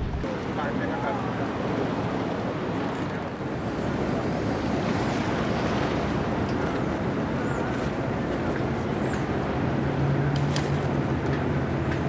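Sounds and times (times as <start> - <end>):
wind on microphone: 0.0 - 0.8
boat engine drone: 0.0 - 12.0.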